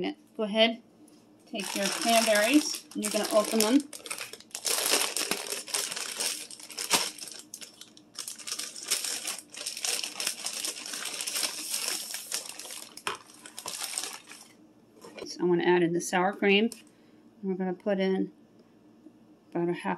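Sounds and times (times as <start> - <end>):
plastic bag crinkling: 1.5 - 15.3.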